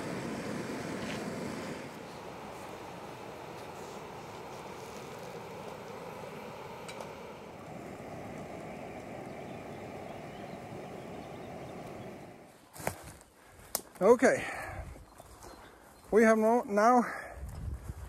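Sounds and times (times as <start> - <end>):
camping stove roaring: 0.0 - 13.0.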